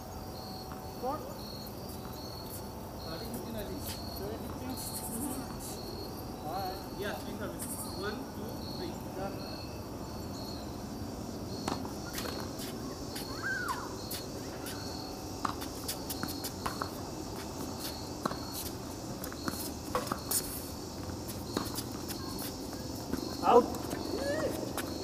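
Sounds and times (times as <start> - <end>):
crickets chirping: 0.0 - 25.0
tennis ball bouncing on court: 11.6 - 12.7, 15.4 - 17.0, 17.6 - 20.4.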